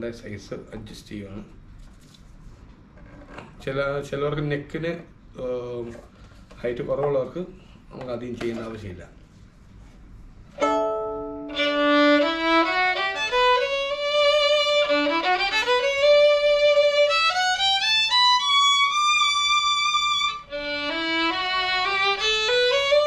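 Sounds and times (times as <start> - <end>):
solo violin bowed: 10.6 - 23.0.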